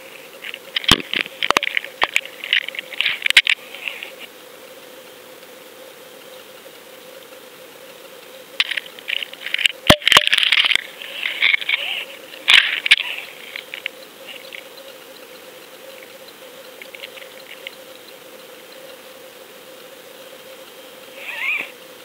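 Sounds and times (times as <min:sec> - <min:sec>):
steady faint hum: 0:00.0 - 0:22.0.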